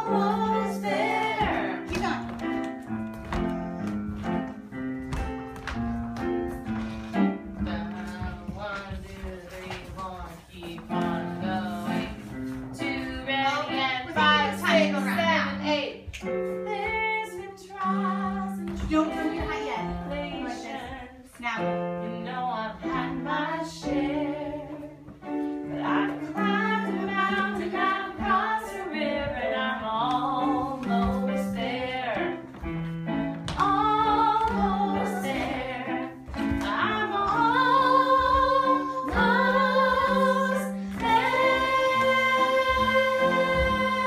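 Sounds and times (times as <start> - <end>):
woman singing: 0.0 - 2.3, 16.6 - 32.4, 33.5 - 44.0
instrumental accompaniment: 0.0 - 44.0.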